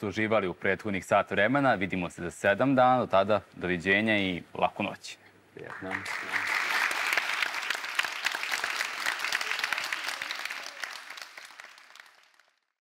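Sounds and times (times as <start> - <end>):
audience applauding: 5.6 - 12.7.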